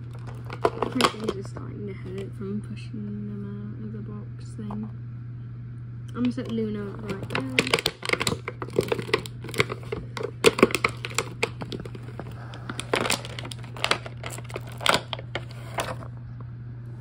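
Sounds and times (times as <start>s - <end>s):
toy packaging crinkling: 0.0s - 2.2s, 6.4s - 16.1s
steady low hum: 0.0s - 17.0s.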